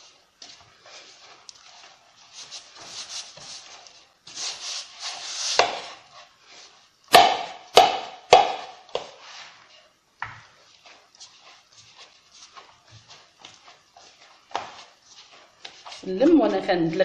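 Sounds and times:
hand kneading dough: 0.0 - 17.0
dough thumping against bowl: 7.1 - 9.2.

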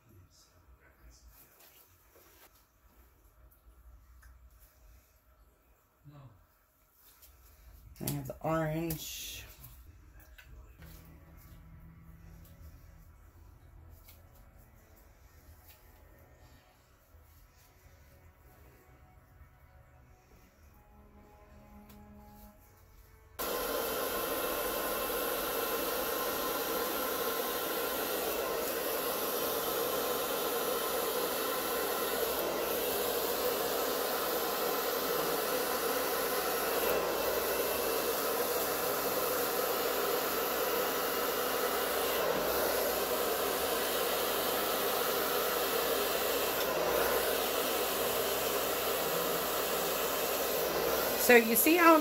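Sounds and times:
hair dryer blowing: 8.0 - 9.6, 20.0 - 52.0.

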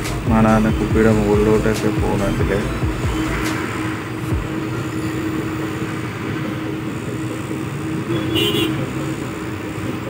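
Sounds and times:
motor hum: 0.0 - 7.5.

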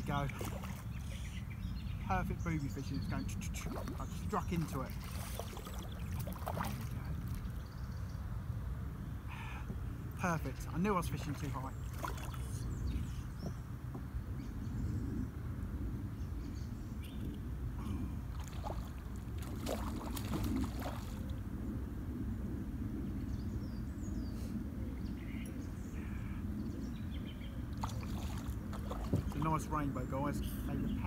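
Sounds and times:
wind buffeting microphone: 10.6 - 31.0.

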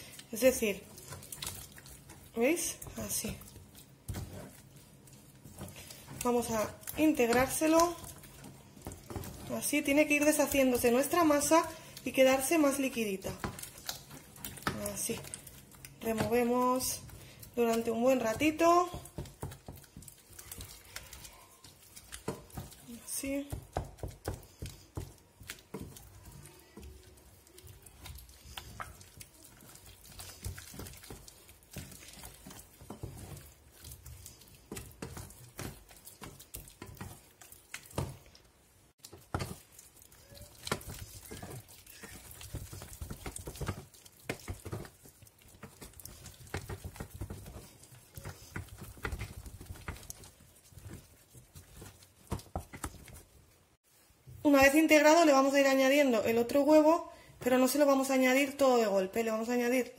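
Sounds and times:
spatula scraping a saucepan: 39.1 - 53.5.

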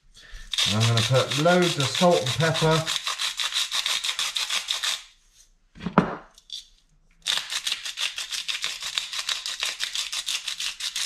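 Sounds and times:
pepper grinder grinding: 0.4 - 5.0, 6.4 - 11.0
salt grinder crunching: 0.5 - 4.8, 7.2 - 11.0.

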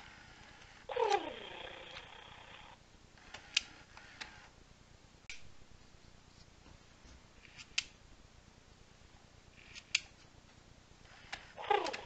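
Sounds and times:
toy mechanical clicks: 0.0 - 4.5, 11.1 - 12.0.

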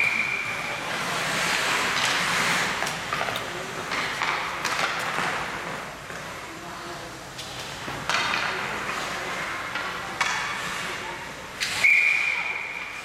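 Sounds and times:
voices in arena: 0.0 - 13.0
sticks and puck knocking on ice: 1.5 - 6.3
referee's whistle: 11.8 - 12.8.

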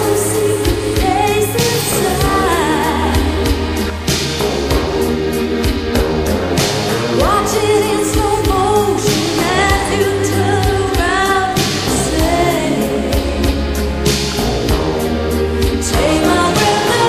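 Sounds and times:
person singing: 0.0 - 3.9, 7.2 - 13.7, 15.8 - 17.0
bass and drum beat: 0.0 - 17.0.

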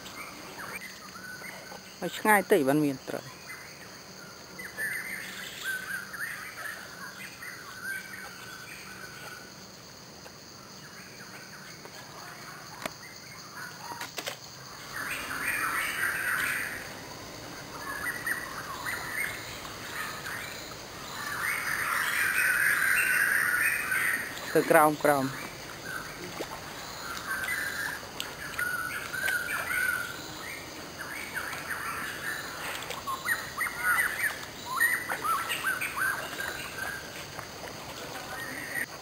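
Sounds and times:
background hiss: 0.0 - 39.0
birds chirping and calling: 14.8 - 37.3.

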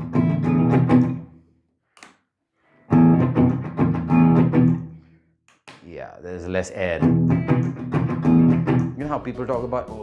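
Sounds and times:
electric guitar chords: 0.0 - 1.3, 2.9 - 5.0, 7.0 - 9.0.

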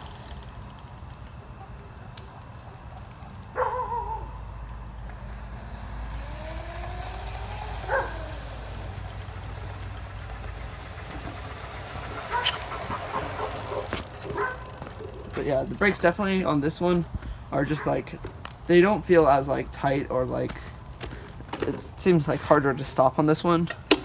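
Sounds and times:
low steady rumble: 0.0 - 23.9
electric scooter riding: 0.0 - 24.0.

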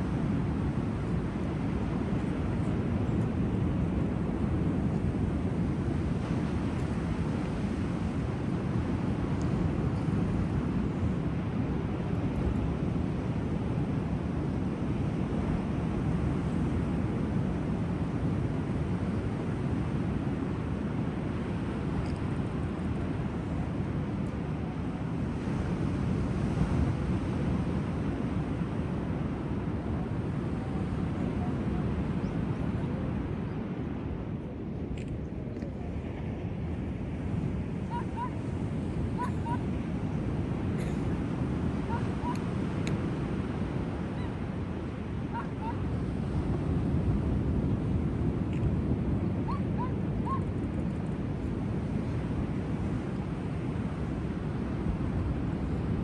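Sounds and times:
surf washing on beach: 0.0 - 56.0
wind buffeting microphone: 0.0 - 56.0
bird calling: 37.9 - 38.4, 39.2 - 39.7, 41.9 - 42.4, 49.5 - 50.5.

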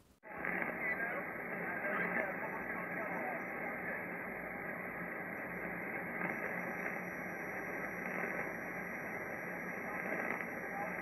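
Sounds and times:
muffled radio static hiss: 0.0 - 11.0.

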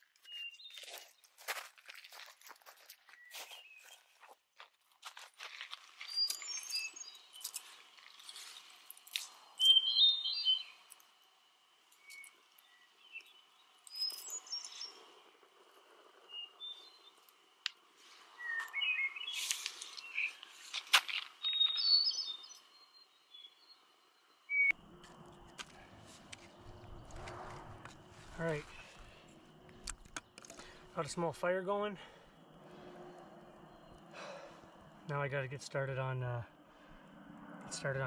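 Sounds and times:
songbirds chirping: 0.0 - 4.4, 5.8 - 38.0
campfire crackling: 5.2 - 22.6, 24.7 - 36.9.

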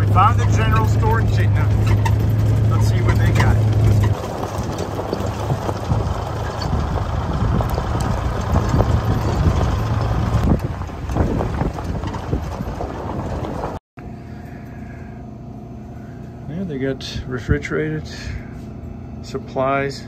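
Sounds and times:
store coolers electrical hum: 0.0 - 5.6, 13.0 - 20.0
vehicle driving on gravel: 0.0 - 13.8
steady low hum: 14.0 - 20.0.

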